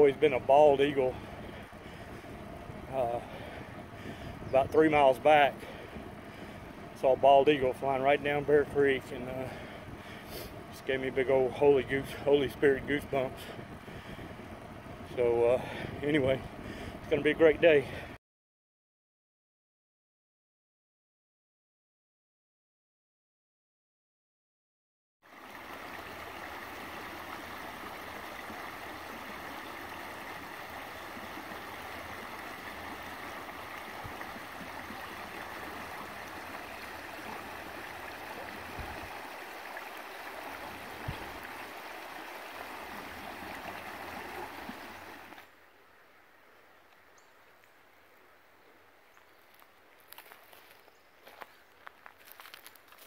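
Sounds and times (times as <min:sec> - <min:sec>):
creek rippling over stones: 0:00.0 - 0:16.6, 0:25.2 - 0:45.6, 0:49.1 - 0:53.0.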